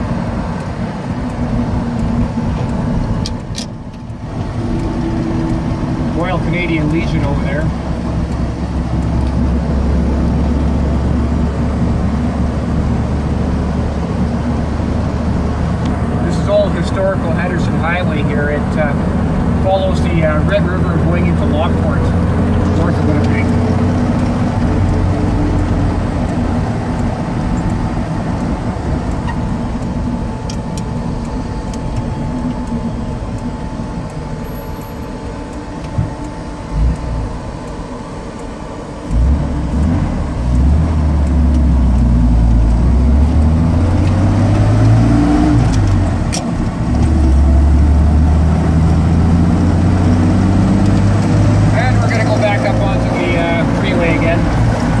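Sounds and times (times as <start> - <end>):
road noise: 0.0 - 55.0
truck engine drone: 0.0 - 55.0.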